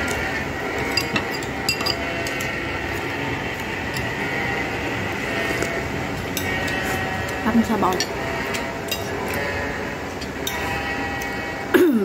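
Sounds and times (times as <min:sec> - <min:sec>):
metal spoon clinking on bowl: 0:00.0 - 0:03.1, 0:06.3 - 0:09.5
steady mechanical hum: 0:00.0 - 0:12.0.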